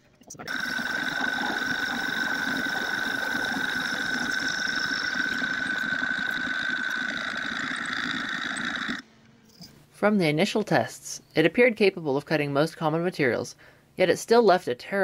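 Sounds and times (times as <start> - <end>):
high-pitched whine: 0.0 - 9.0
metal lathe running: 0.5 - 9.0.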